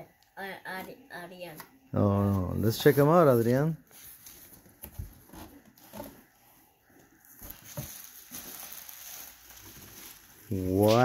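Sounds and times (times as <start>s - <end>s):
bubble wrap crinkling: 7.1s - 11.0s.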